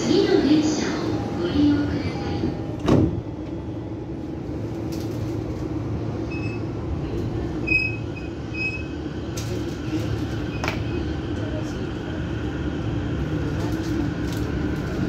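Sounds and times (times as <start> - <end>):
train low hum: 0.0 - 15.0
train doors thudding shut: 2.7 - 3.6.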